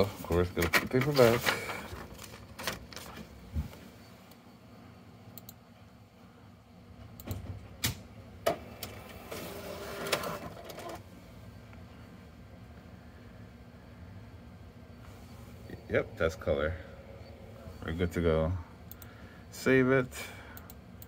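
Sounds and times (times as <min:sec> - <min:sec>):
scanner feed motor running: 0:14.8 - 0:19.8.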